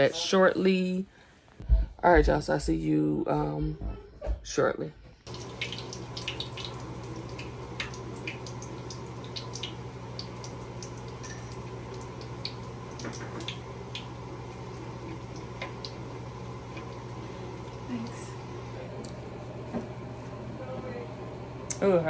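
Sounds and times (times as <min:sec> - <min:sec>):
oil sizzling and popping: 0:05.2 - 0:20.5.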